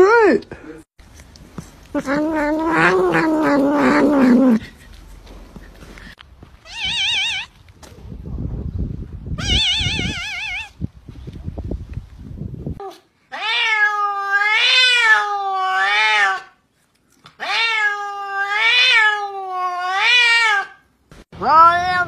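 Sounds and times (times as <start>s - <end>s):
cat meowing: 2.0s - 4.6s, 6.6s - 7.6s, 9.4s - 10.8s, 12.8s - 16.6s, 17.4s - 20.8s, 21.4s - 22.0s.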